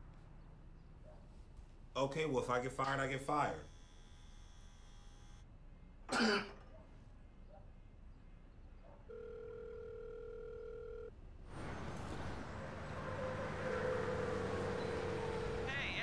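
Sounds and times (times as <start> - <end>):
street traffic noise: 0.0 - 3.8, 11.1 - 16.0
telephone ringback tone: 9.1 - 11.1.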